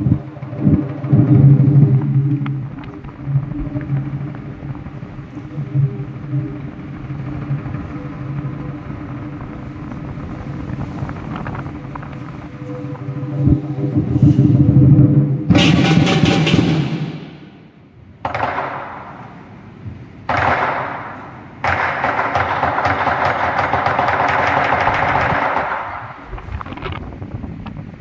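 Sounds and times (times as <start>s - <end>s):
cymbals and gong crashing: 15.4s - 17.8s.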